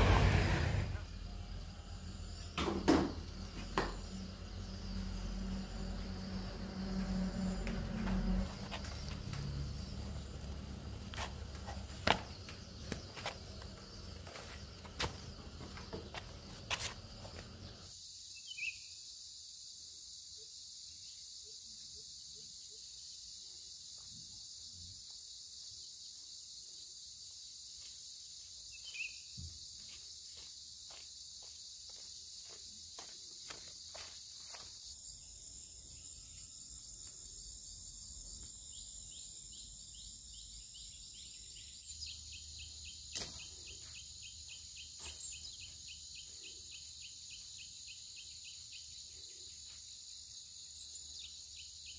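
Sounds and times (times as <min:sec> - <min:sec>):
insects buzzing and trilling: 0:00.0 - 0:51.9
soft footsteps on path: 0:07.0 - 0:17.8, 0:27.7 - 0:35.0.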